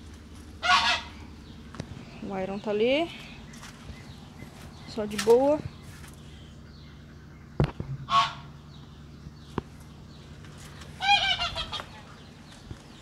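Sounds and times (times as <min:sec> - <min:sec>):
waterfowl honking: 0:00.6 - 0:01.3, 0:08.0 - 0:08.6, 0:11.0 - 0:12.3.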